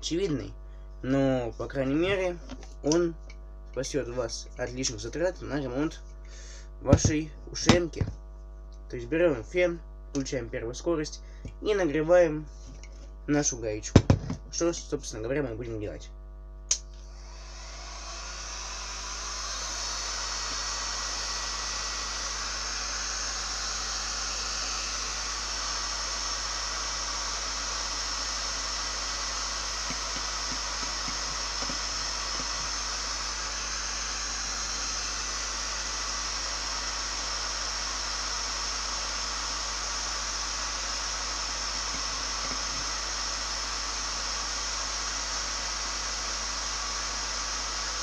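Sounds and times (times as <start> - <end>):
heat gun fan hissing: 17.0 - 48.0.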